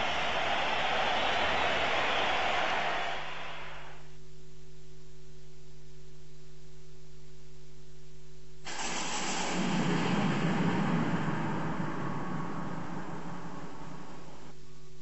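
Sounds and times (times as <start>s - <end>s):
electrical hum: 4.1s - 15.0s
recording hiss and rumble: 8.0s - 15.0s
low held tones: 8.7s - 15.0s.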